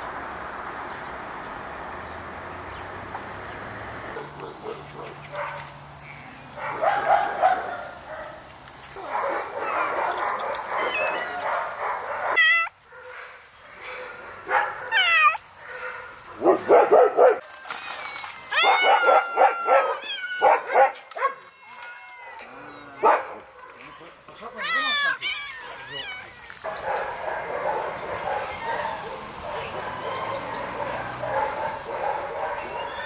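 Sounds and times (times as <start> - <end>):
dogs barking: 4.0 - 5.8, 6.5 - 17.4, 18.6 - 21.5, 22.9 - 33.0
dog yelping: 9.0 - 13.2, 13.8 - 17.4, 18.0 - 21.5, 24.5 - 33.0.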